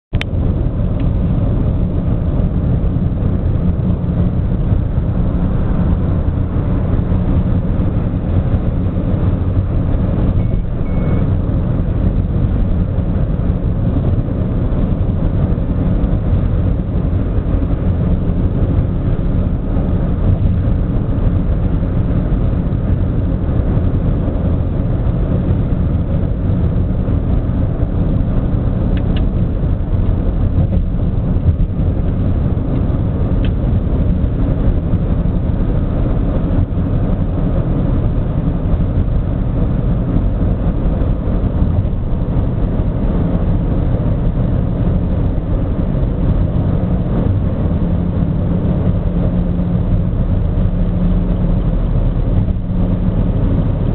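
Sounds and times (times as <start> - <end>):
car road and engine rumble: 0.1 - 53.9
faint double beep: 10.4 - 11.3.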